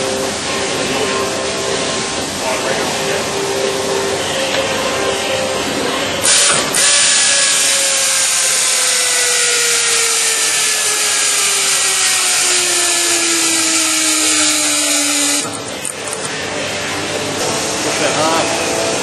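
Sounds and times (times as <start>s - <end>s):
pneumatic torque wrench running: 6.2s - 16.3s.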